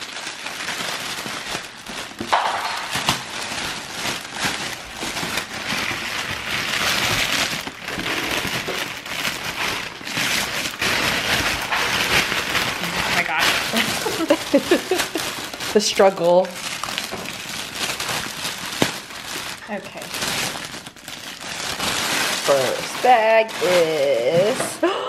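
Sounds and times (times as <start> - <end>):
plastic bag crinkling: 0.0 - 25.0.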